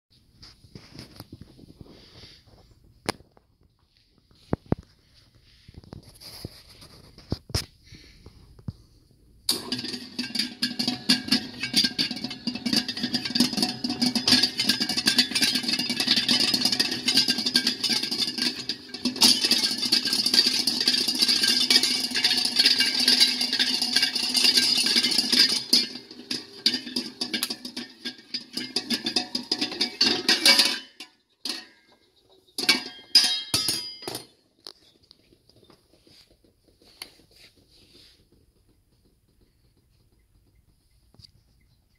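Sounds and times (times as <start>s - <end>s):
mixer rattling and humming: 9.5s - 31.0s.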